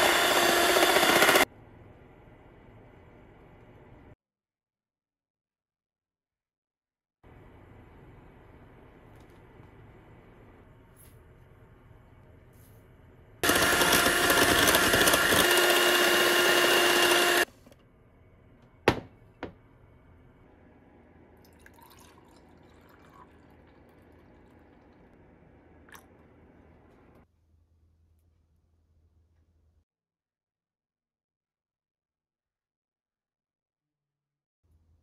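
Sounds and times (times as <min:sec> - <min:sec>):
electric hand mixer running: 0:00.0 - 0:01.5, 0:13.4 - 0:17.5.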